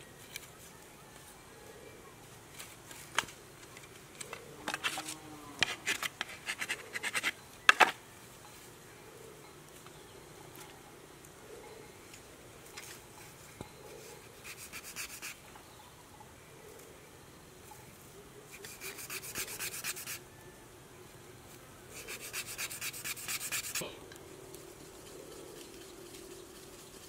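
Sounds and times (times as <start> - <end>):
rasping of bamboo: 4.7 - 7.4, 14.0 - 15.4, 18.5 - 20.2, 21.9 - 23.9.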